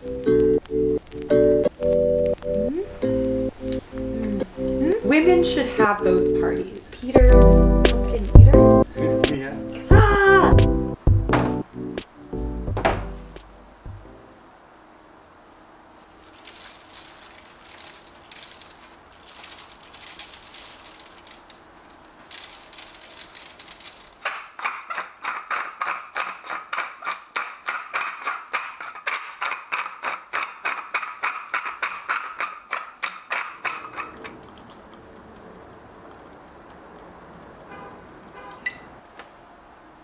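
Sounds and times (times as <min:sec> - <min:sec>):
salt patterring on sheet pan: 0:16.0 - 0:34.9
pepper mill grinding: 0:16.0 - 0:35.2.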